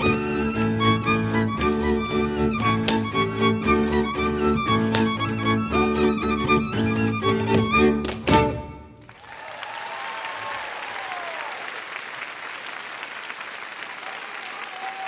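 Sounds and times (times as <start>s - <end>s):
live folk music: 0.0s - 9.0s
audience applause: 9.0s - 15.0s.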